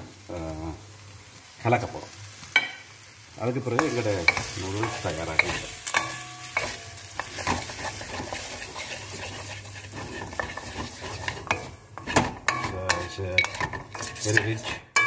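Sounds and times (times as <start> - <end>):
noodles sizzling in a wok: 0.0 - 15.0
spatula scraping and knocking pan: 3.7 - 15.0.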